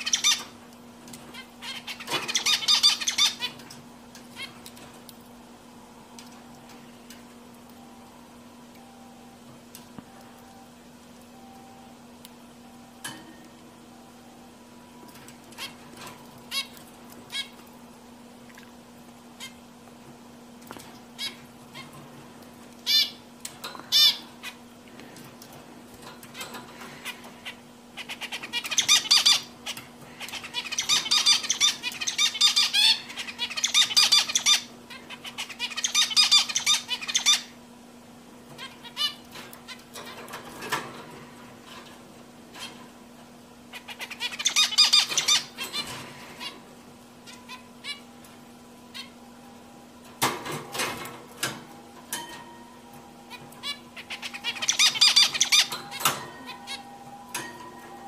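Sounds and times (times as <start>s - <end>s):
finch calls and buzzy song: 0.0s - 4.9s, 15.0s - 17.7s, 20.8s - 37.6s, 38.5s - 41.8s, 43.6s - 49.4s, 50.2s - 58.0s.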